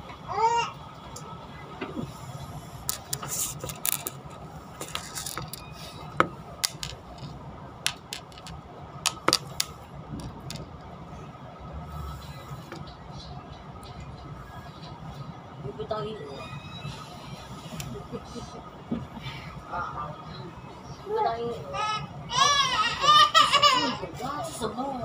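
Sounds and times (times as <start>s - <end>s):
train carriage rumble: 0.0s - 25.0s
carriage clicks and rattles: 6.6s - 10.8s.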